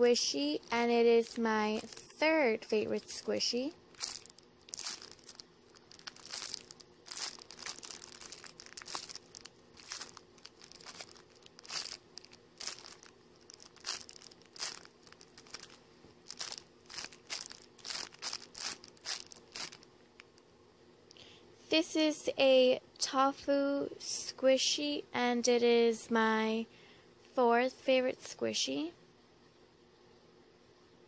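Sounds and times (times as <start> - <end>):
plastic packaging crinkling: 0.6 - 20.3.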